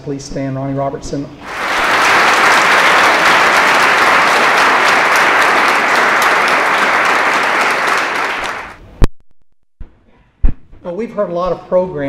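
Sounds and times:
audience applauding: 0:01.4 - 0:08.8.

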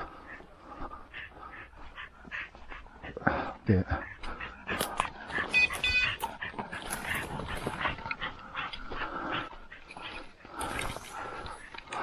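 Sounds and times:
footsteps in undergrowth: 0:04.0 - 0:12.0.

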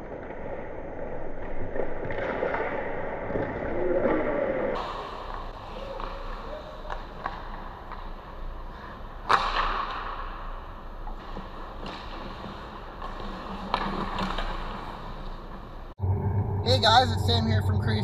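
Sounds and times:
hockey sticks and puck clacking: 0:00.0 - 0:15.8
skates scraping on ice: 0:00.0 - 0:15.9.

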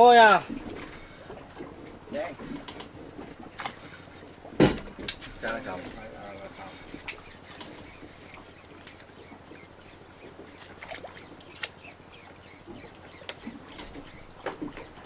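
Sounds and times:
boat engine humming: 0:00.0 - 0:15.0.

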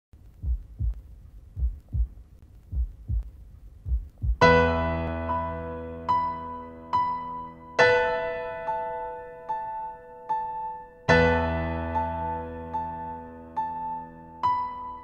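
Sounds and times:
low double thumps: 0:00.2 - 0:04.6
piano chord and notes: 0:04.4 - 0:15.0.

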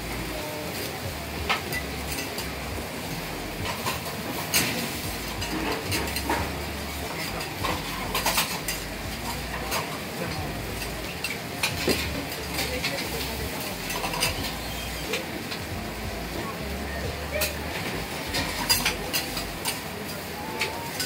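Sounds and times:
food sizzling on griddle: 0:00.0 - 0:21.0
metal spatulas scraping on griddle: 0:02.1 - 0:10.0, 0:13.7 - 0:15.1.

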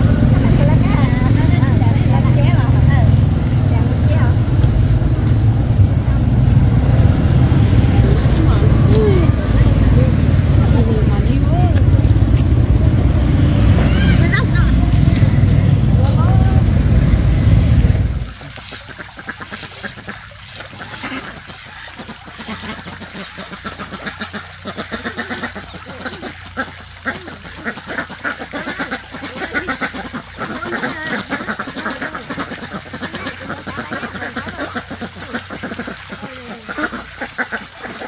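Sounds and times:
loud street traffic: 0:00.0 - 0:18.3
farmyard birds chattering: 0:18.5 - 0:38.0.

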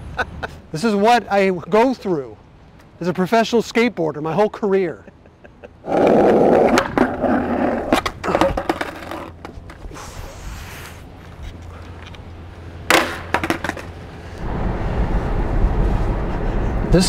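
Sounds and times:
skateboard wheels rolling on asphalt: 0:05.8 - 0:17.0
skateboard clacking on pavement: 0:06.5 - 0:09.9, 0:12.9 - 0:14.0.

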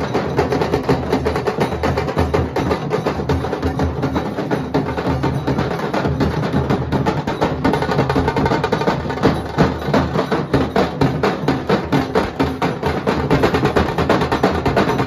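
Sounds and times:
barrel drums beaten with sticks: 0:00.0 - 0:15.0.

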